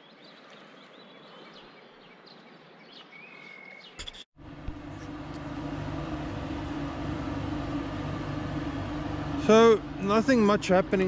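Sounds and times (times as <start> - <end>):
birds chirping: 0.0 - 4.2
pump machine hum: 4.4 - 11.0.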